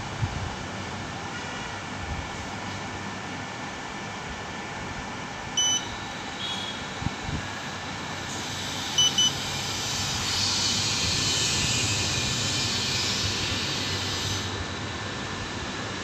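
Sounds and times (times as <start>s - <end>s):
short high beeps: 5.6s - 6.0s, 9.0s - 9.4s.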